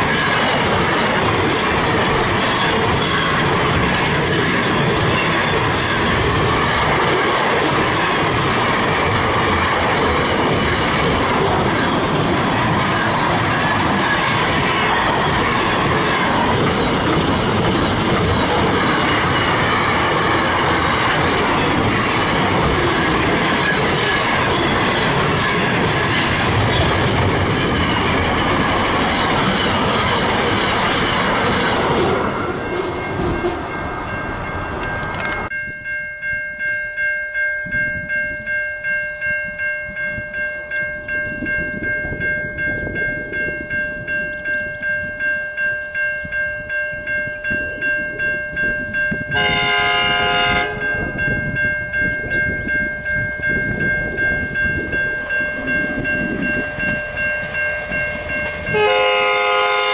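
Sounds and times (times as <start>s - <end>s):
freight train wagons rolling past: 0.0s - 35.5s
level crossing warning bell: 0.0s - 59.9s.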